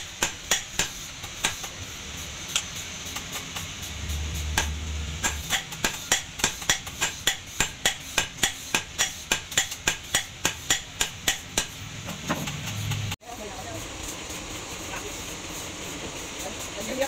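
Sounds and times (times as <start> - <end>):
hammer striking hot steel on anvil: 0.0 - 1.8, 2.5 - 13.0.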